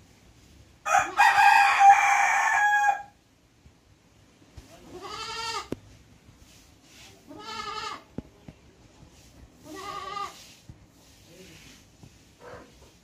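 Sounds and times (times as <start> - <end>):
goat bleating: 4.8 - 5.8, 7.2 - 8.1, 9.6 - 10.4.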